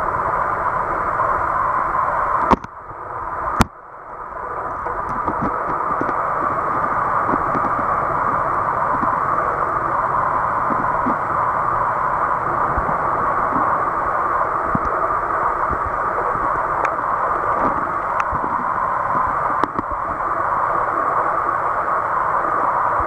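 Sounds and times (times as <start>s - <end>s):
water rushing in tide pool: 0.0s - 23.0s.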